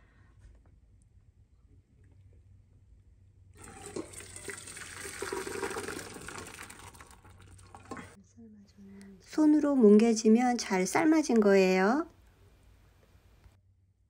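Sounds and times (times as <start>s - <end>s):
water splashing into colander: 3.6s - 8.2s.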